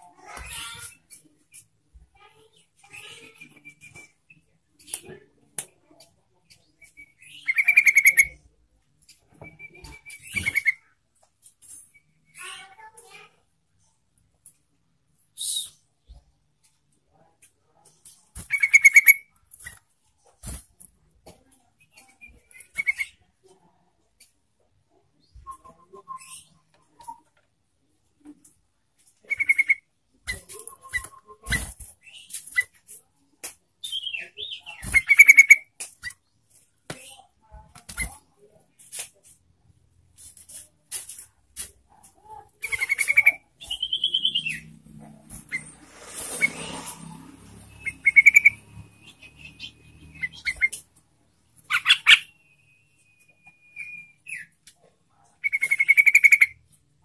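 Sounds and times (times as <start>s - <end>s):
bird chattering song: 6.8s - 8.4s, 18.4s - 19.3s, 29.2s - 32.8s, 42.6s - 44.8s, 47.7s - 50.9s, 51.6s - 52.5s, 55.4s - 56.6s
high whistled bird tones: 42.8s - 44.7s, 51.7s - 54.5s.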